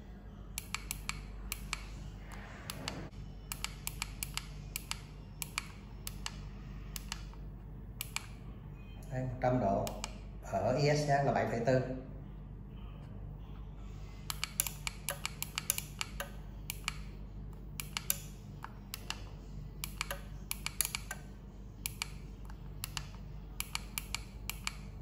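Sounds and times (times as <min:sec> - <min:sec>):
steady low hum: 0:00.0 - 0:25.0
push-button keys clicking: 0:14.3 - 0:17.1, 0:17.8 - 0:21.2.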